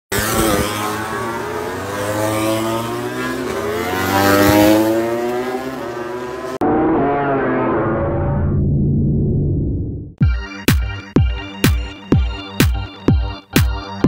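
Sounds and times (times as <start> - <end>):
motorcycle engines revving: 0.1 - 8.0.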